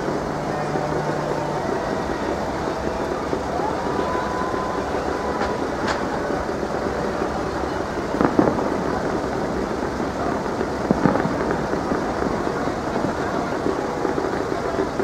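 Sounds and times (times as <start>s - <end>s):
fireworks bangs: 0.0s - 15.0s
fireworks crackling and rumbling: 0.0s - 15.0s.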